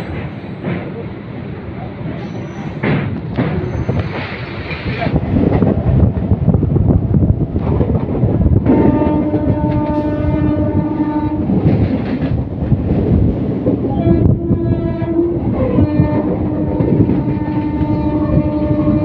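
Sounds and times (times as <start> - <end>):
moving train running noise: 0.0 - 19.0
train horn blasts: 8.6 - 11.7, 13.9 - 19.0.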